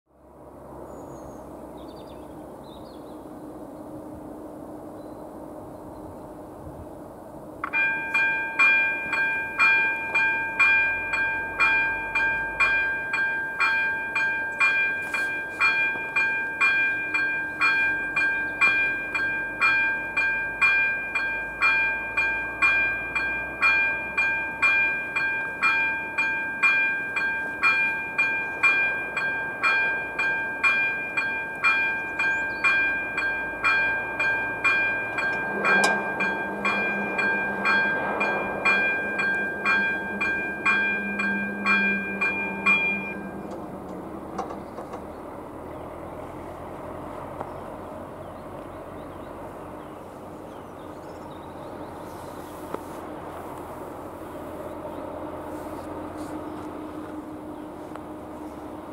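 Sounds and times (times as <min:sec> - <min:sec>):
electronic crossing bell ringing: 0:07.6 - 0:44.6
low hum of barriers lowering: 0:07.7 - 0:47.8.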